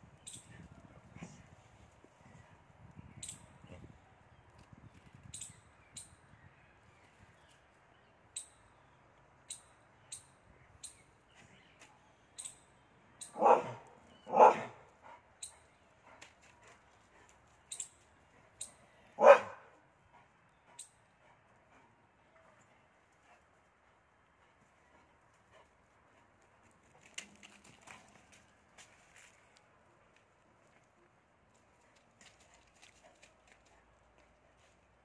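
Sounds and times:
dog barking: 0:13.4 - 0:14.8, 0:19.2 - 0:19.7.

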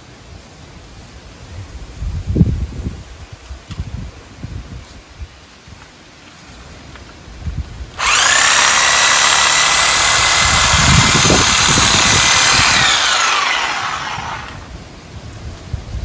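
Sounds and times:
power tool motor whining: 0:08.0 - 0:14.7.

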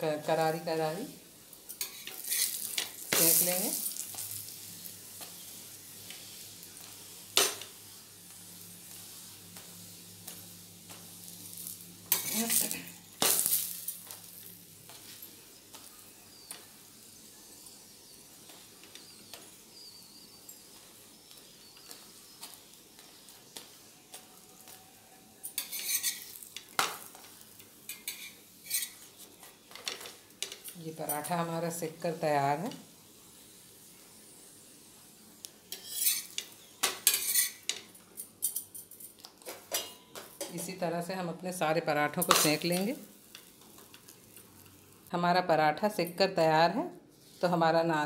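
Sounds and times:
bread sizzling on a griddle: 0:00.0 - 0:48.0
metal spatula scraping griddle: 0:01.7 - 0:04.6, 0:11.6 - 0:13.8, 0:25.5 - 0:27.2, 0:27.9 - 0:29.1, 0:35.7 - 0:37.7.

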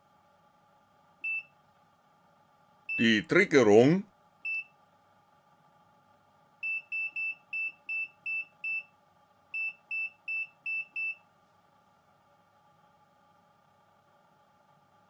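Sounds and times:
short high multimeter beeps: 0:01.2 - 0:01.5, 0:04.5 - 0:04.7, 0:06.6 - 0:08.9, 0:09.6 - 0:11.2.

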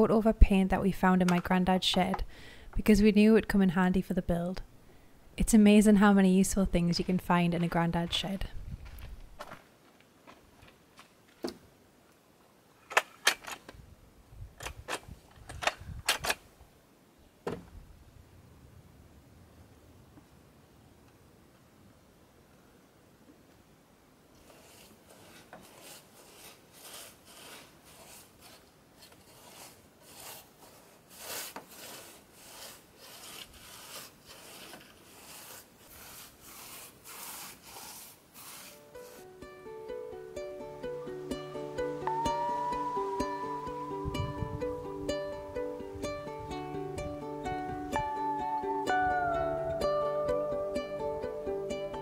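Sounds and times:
paintbrush scrubbing on wood: 0:24.4 - 0:39.3.

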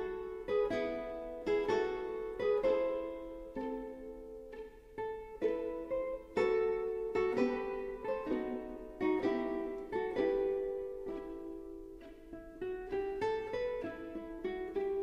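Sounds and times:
plucked string instrument melody: 0:00.0 - 0:15.0.

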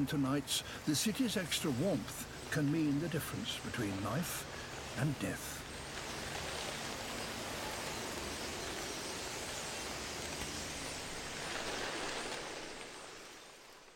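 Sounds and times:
starlings chattering: 0:00.0 - 0:10.7.

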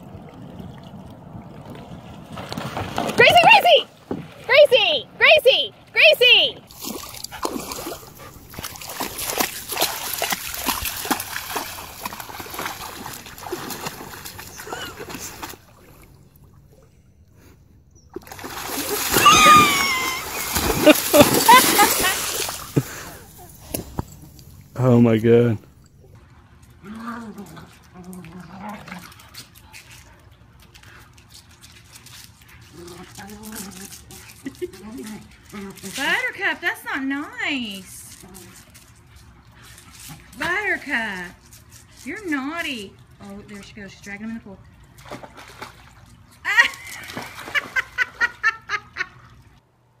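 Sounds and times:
dog splashing through water: 0:01.4 - 0:04.5, 0:06.6 - 0:16.2, 0:18.1 - 0:24.3, 0:44.7 - 0:48.2.

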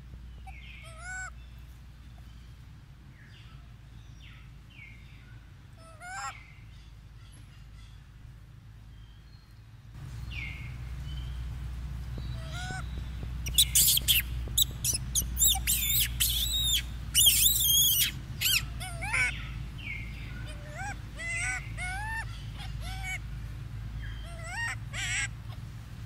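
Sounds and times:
steady low rumble: 0:00.0 - 0:26.0
monkeys squeaking and chirping: 0:00.4 - 0:01.3, 0:05.8 - 0:06.4, 0:12.2 - 0:23.4, 0:24.0 - 0:25.7.

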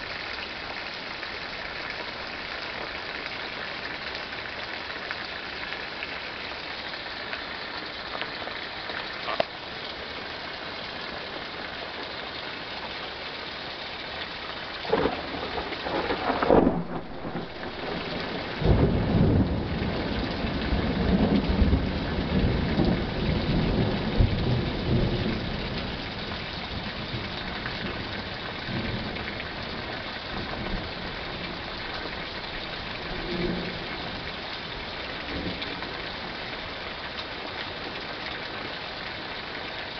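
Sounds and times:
steady rain: 0:00.0 - 0:39.9
thunderclap: 0:14.9 - 0:20.0.

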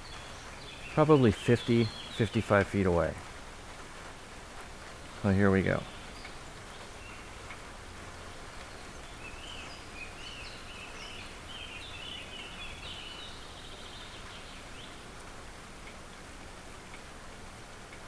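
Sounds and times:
steady background noise: 0:00.0 - 0:18.0.

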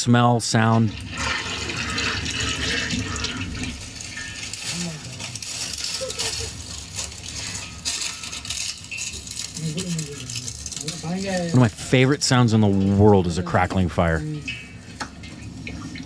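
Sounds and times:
wood fire crackling: 0:00.0 - 0:16.0.

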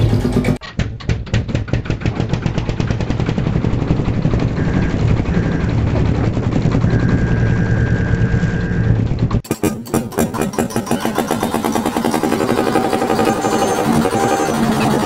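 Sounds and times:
tractor engine knocking: 0:00.0 - 0:15.0.

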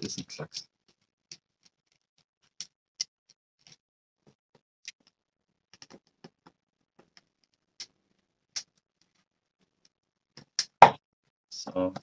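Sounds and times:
small plastic clicks and taps: 0:05.8 - 0:07.9.

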